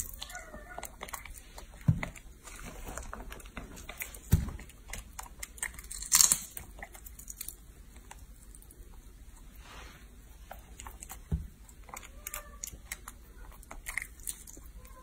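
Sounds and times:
chewing clicks and crackles: 0.0 - 9.5, 10.4 - 15.0
eggshell breaking: 4.2 - 7.6.

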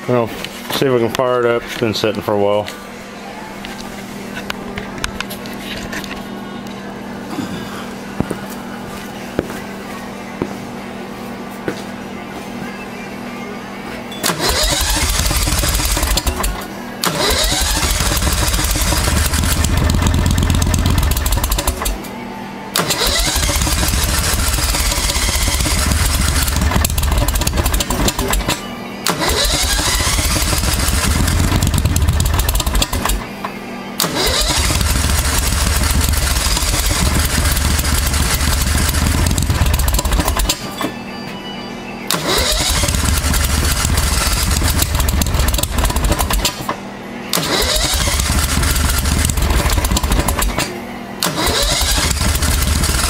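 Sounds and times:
engine starter cranking: 14.2 - 22.0, 22.8 - 33.3, 34.0 - 40.6, 42.1 - 46.7, 47.3 - 53.0.

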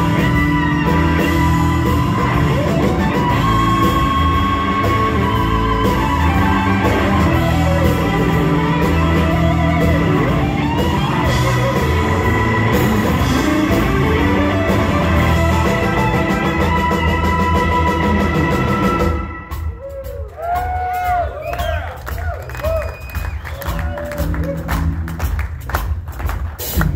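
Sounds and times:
electric lead guitar: 0.0 - 19.9
bass guitar: 0.0 - 26.9
drums: 0.0 - 26.9.

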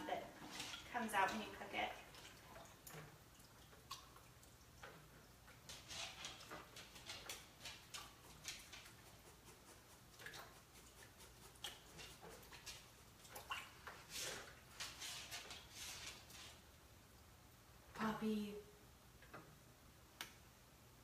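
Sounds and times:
water splashing at a sink: 0.0 - 16.7.

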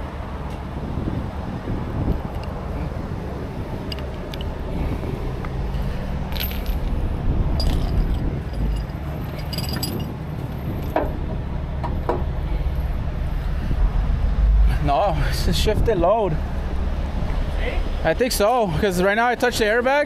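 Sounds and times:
steady low rumble: 0.0 - 19.9
metal chain clinking: 3.8 - 4.6, 5.8 - 11.0.

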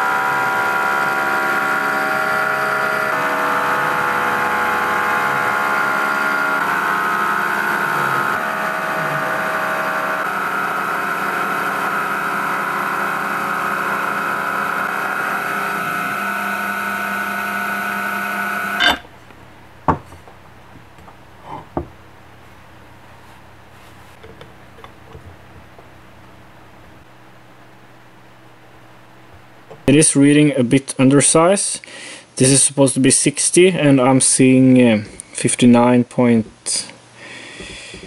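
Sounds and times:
milling spindle whining while cutting: 0.0 - 19.1.

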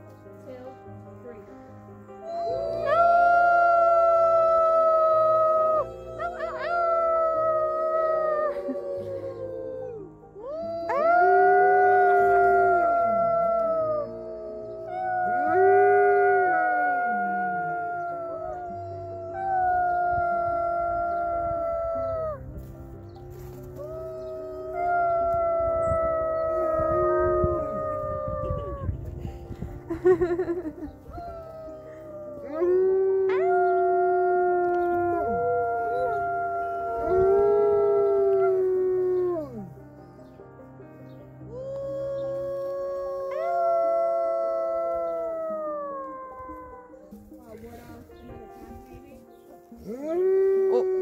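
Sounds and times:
dog howling: 2.2 - 22.5, 23.8 - 29.0, 31.1 - 39.8, 41.6 - 47.1, 49.9 - 51.0.

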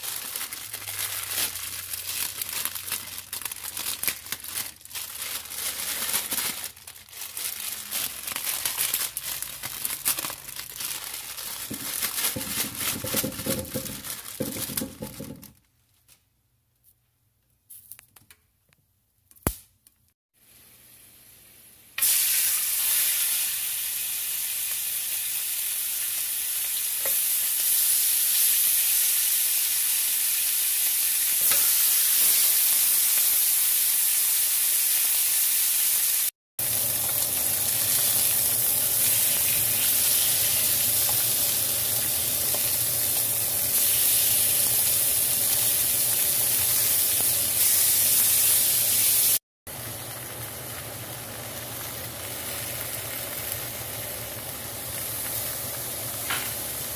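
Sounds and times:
meat sizzling in hot oil: 20.4 - 56.9.

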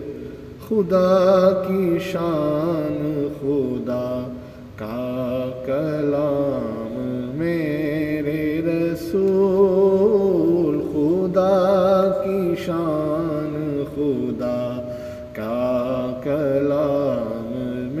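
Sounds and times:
wordless male vocal melody: 0.0 - 18.0.

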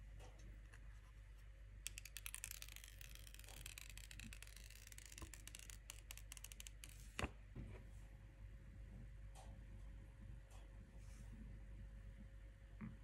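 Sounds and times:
protective wrap peeling crackle: 1.9 - 7.0.

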